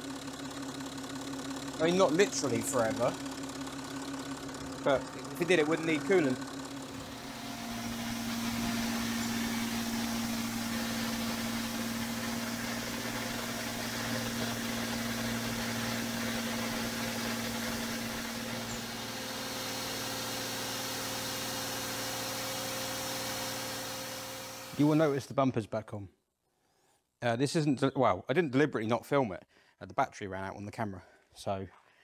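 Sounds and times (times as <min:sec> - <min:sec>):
car engine idling: 0:00.0 - 0:25.1.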